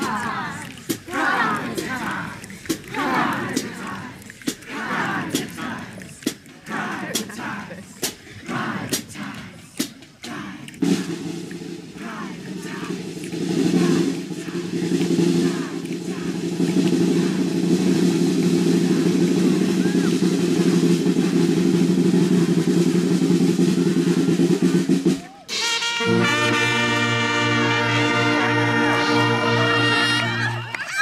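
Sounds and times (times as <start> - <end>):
brass band playing: 10.5 - 30.8.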